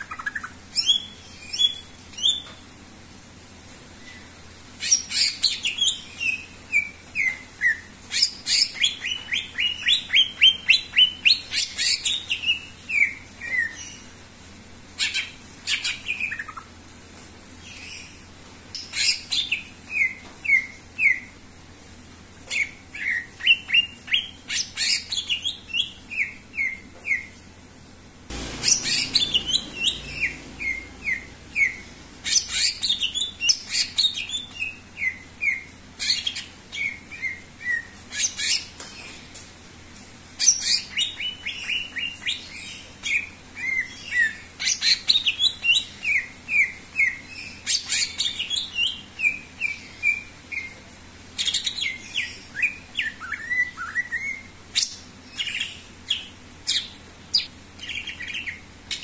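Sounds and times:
bird chirping and whistling: 28.3 - 35.6.

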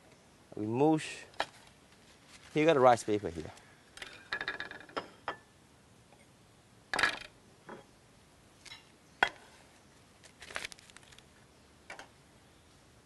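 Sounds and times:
dishes knocking and clinking: 4.2 - 5.4.

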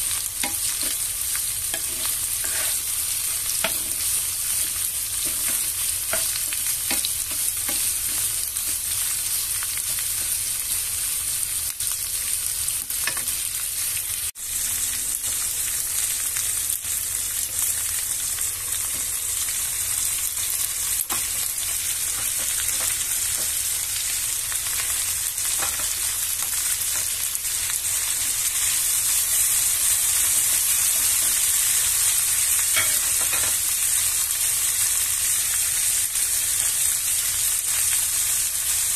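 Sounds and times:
food sizzling in a pan: 0.0 - 38.9
wooden spatula scraping a pan: 1.7 - 8.8.

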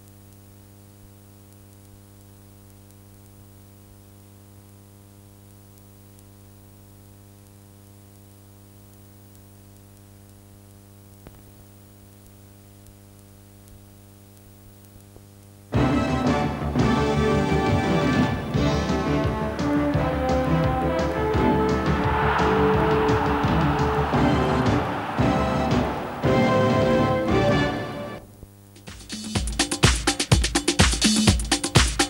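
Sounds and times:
tape hiss: 0.0 - 32.0
faint click: 1.5 - 3.4.

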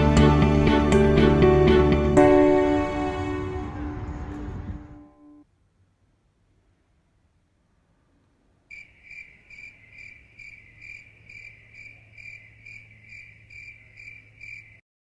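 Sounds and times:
low hum: 0.0 - 8.6
cricket chirping: 8.7 - 14.8.

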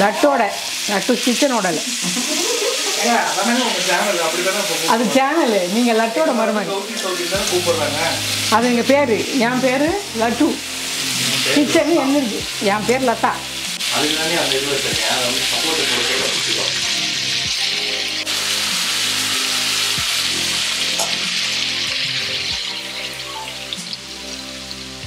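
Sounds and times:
fish sizzling in oil: 0.0 - 25.0
person speaking: 6.3 - 13.3.

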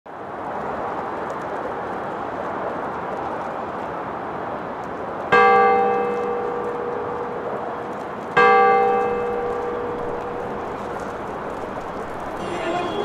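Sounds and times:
large tower bell ringing: 5.4 - 7.4, 8.4 - 11.3, 12.3 - 13.0.

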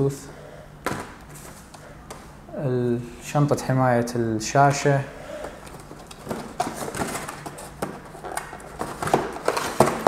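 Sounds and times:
hands rummaging in cardboard box: 5.7 - 10.0.

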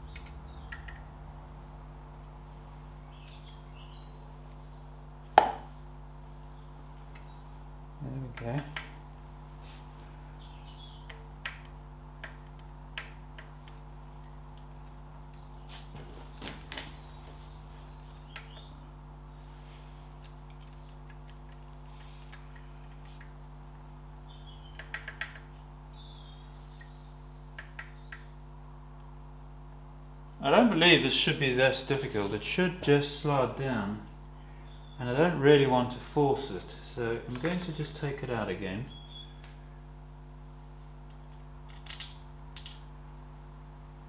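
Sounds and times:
electrical hum: 0.0 - 44.0
light clicks and metal taps: 0.1 - 1.0
faint bird chirps: 2.5 - 4.9, 24.2 - 28.8, 34.4 - 35.0, 38.8 - 39.5.

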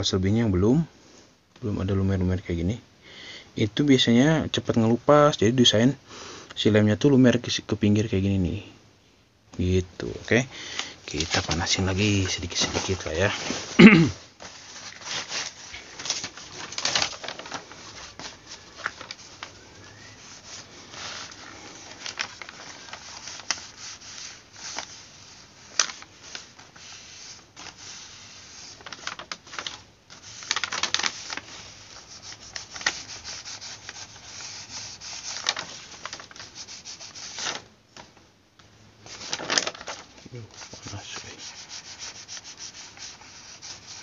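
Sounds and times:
iron rubbing over paper: 11.1 - 37.6, 39.0 - 44.0
nylon fabric rustling: 11.1 - 37.7.

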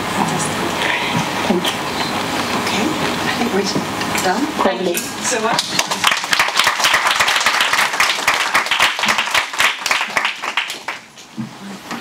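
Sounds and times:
audience applauding: 5.6 - 11.2.

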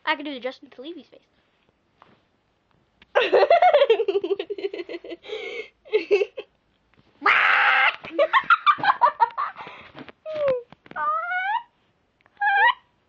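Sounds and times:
girl laughing: 3.2 - 6.5, 7.3 - 9.8
girl shrieking: 7.2 - 8.1, 11.0 - 11.7.

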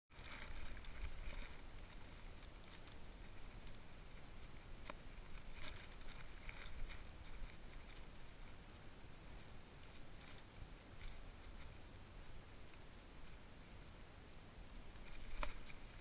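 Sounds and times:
wind rumbling on microphone: 0.1 - 16.0.

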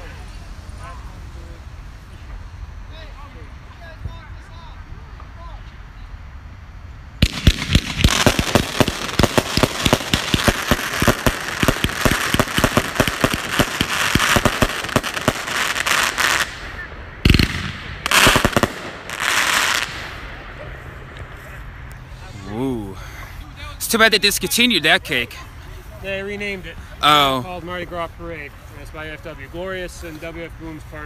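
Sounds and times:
loud firework bang: 7.2 - 15.4
fireworks shots and crackling: 7.2 - 21.4.

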